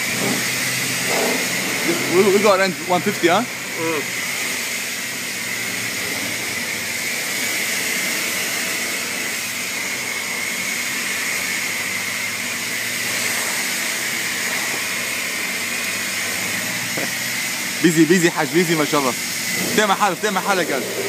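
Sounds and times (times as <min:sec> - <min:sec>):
rushing hiss of machinery: 0:12.9 - 0:21.0.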